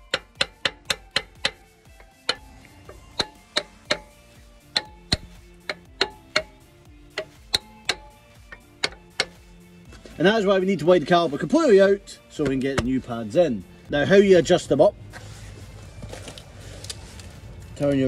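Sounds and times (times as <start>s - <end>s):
socket ratchet clicking: 0.0s - 9.6s.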